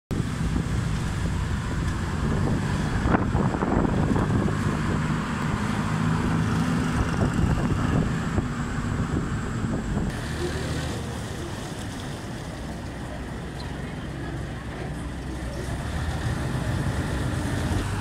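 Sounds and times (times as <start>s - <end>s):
wind noise on microphone: 0.1s - 10.5s
auto rickshaw engine running: 0.2s - 18.0s.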